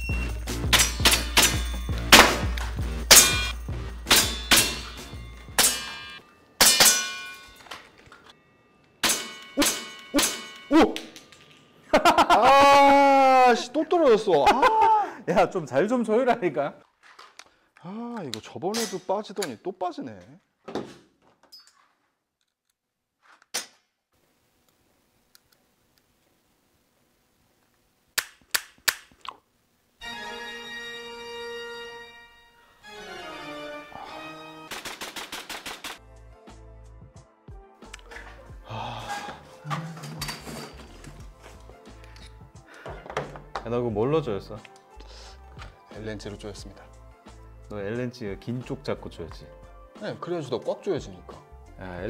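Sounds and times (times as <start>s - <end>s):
background music with low beat: 0.0s - 6.2s, 36.0s - 52.0s
pellets clanging on steel plates: 0.6s - 8.3s, 9.0s - 11.7s
pistol clicks: 28.2s - 29.2s
airsoft pistols firing: 34.7s - 36.0s.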